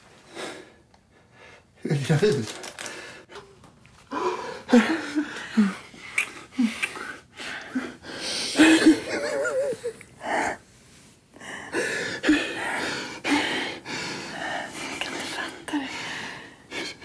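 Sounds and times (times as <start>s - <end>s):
person sobbing and gasping: 4.1s - 10.6s.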